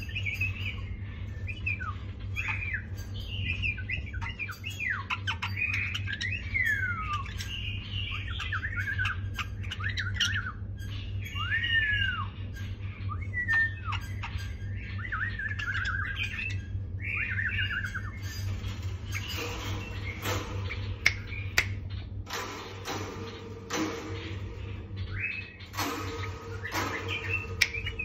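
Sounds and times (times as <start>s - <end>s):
steady low hum: 0.0s - 28.0s
bird singing whistled phrases: 1.5s - 12.4s, 13.0s - 18.3s.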